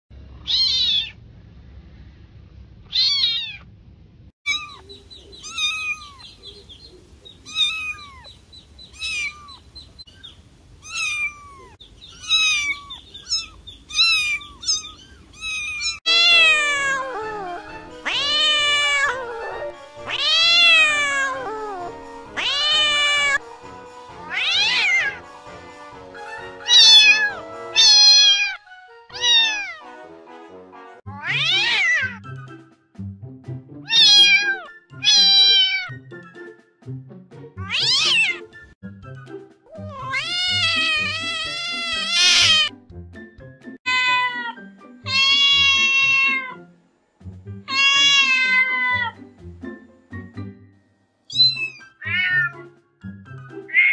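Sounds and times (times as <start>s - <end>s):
cats and kittens meowing: 0.4s - 1.2s, 2.9s - 3.7s, 4.5s - 23.4s, 24.2s - 25.2s, 26.7s - 29.9s, 31.1s - 32.2s, 33.9s - 36.0s, 37.6s - 38.5s, 39.7s - 42.7s, 43.9s - 46.6s, 47.7s - 49.2s, 51.3s - 52.6s.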